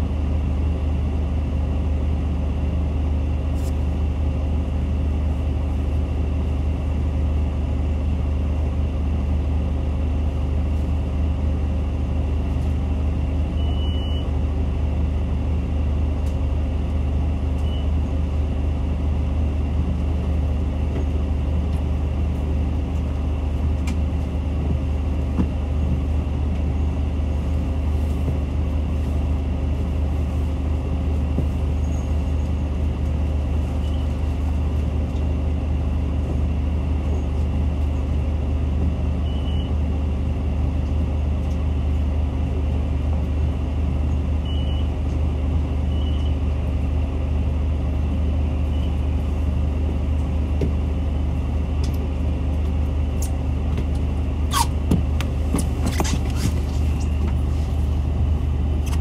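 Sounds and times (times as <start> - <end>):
bus diesel engine drone: 0.0 - 59.0.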